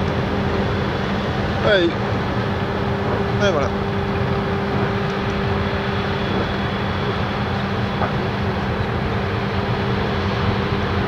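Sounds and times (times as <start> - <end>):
barge diesel engine drone: 0.0 - 11.0
water rushing: 0.0 - 11.0.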